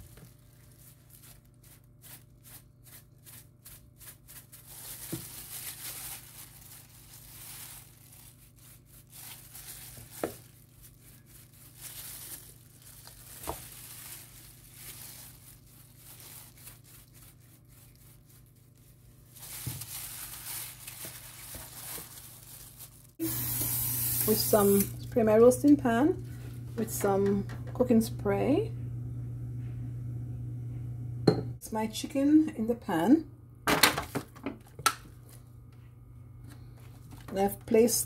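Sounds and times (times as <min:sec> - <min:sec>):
plastic glove crinkling: 0:00.0 - 0:27.3
wet rubbing on chicken skin: 0:00.3 - 0:23.1.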